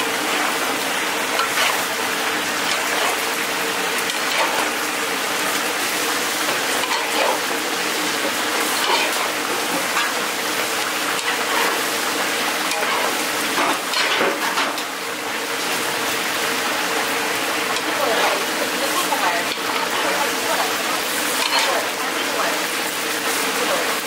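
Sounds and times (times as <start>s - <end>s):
food sizzling in a pan: 0.0s - 24.0s
spatula scraping and rustling: 1.3s - 2.0s, 2.6s - 3.4s, 4.0s - 4.8s, 6.5s - 7.4s.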